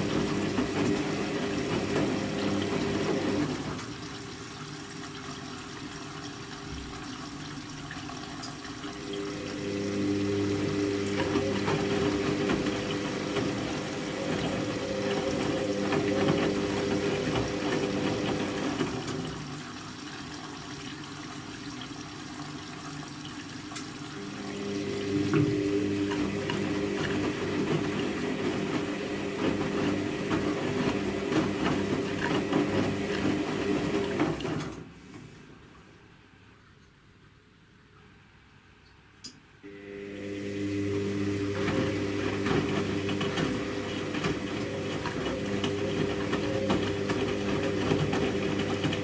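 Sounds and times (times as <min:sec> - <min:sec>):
laundry sloshing in water: 0:00.0 - 0:05.1, 0:07.6 - 0:19.8, 0:24.2 - 0:35.1, 0:41.2 - 0:49.0
washing machine motor humming: 0:00.0 - 0:35.1, 0:39.6 - 0:49.0.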